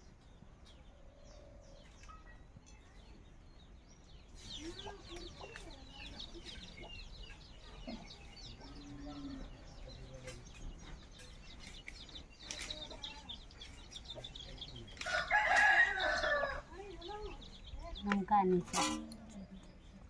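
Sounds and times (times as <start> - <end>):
small birds chirping: 0.0 - 20.0
rooster crowing: 15.0 - 16.7.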